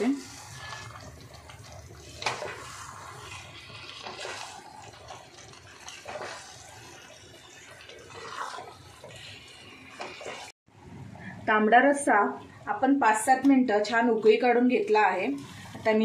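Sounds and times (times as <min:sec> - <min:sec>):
spatula scraping wet food squelching: 0:00.1 - 0:10.6.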